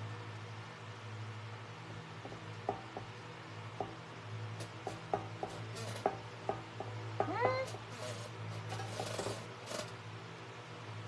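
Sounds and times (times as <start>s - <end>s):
steady low hum: 0.0s - 11.0s
fingertip tapping metal tray: 4.6s - 9.9s.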